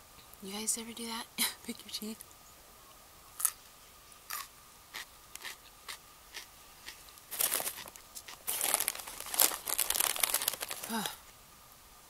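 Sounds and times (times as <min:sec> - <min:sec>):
snack packaging crinkling: 0:04.3 - 0:11.2.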